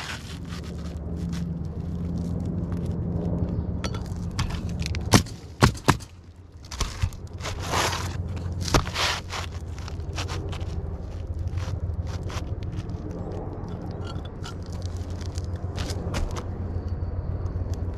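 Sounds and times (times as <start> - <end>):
scraping rustles: 0.0 - 3.0, 6.6 - 16.5
low machine hum: 0.0 - 17.9.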